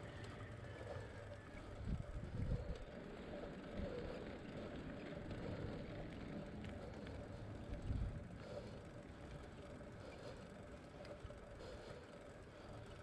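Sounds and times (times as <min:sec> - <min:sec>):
bicycle rolling on paved road: 0:00.0 - 0:13.0
wind buffeting microphone: 0:01.7 - 0:03.0.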